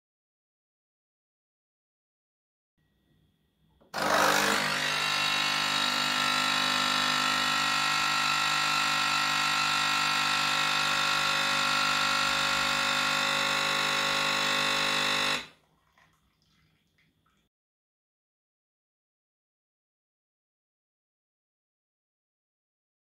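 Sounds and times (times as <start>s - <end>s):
coffee machine pump buzzing: 3.8s - 15.6s.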